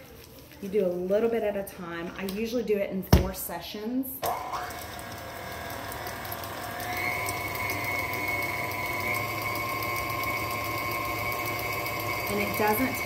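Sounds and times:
stand mixer motor whining: 4.2 - 13.0.

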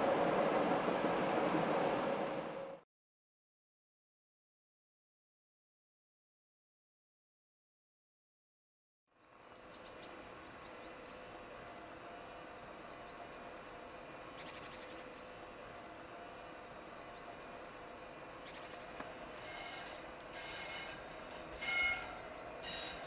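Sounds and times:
rail vehicle approaching: 0.0 - 2.8, 9.1 - 23.0
faint steady hum: 9.2 - 23.0.

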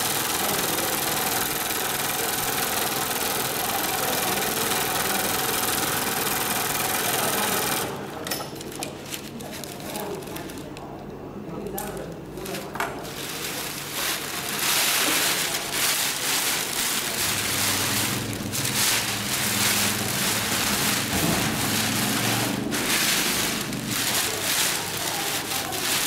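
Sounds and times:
sailcloth rustling and crinkling: 12.0 - 26.0.

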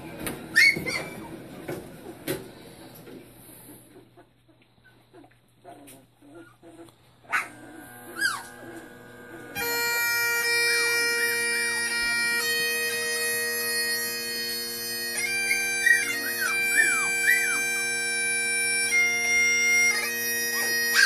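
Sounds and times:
bagpipes playing: 7.6 - 21.0.

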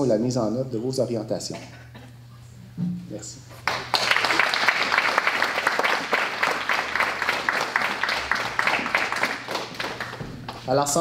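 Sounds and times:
audience applauding: 3.6 - 10.7.

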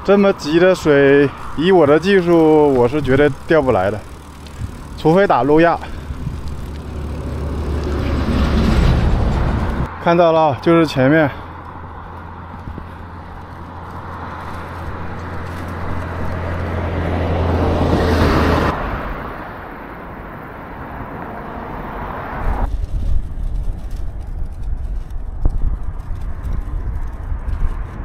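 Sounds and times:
vehicle passing by: 0.0 - 22.7
wind rumble on microphone: 4.3 - 9.9, 22.4 - 28.0.

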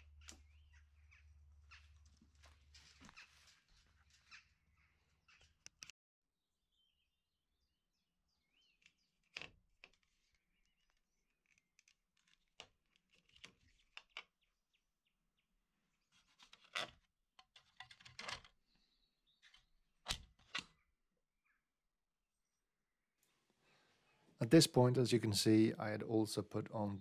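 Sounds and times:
faint bird chirps: 0.0 - 2.0.

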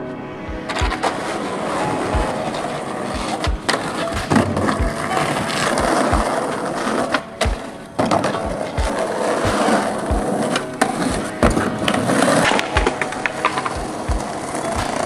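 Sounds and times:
skateboard wheels rolling on concrete: 0.0 - 15.0
skateboard clacking: 0.7 - 15.0.

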